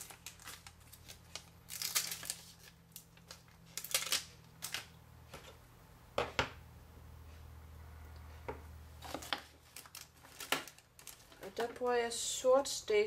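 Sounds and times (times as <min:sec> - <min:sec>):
plastic sheet rustling: 0:00.0 - 0:04.9, 0:09.0 - 0:12.1.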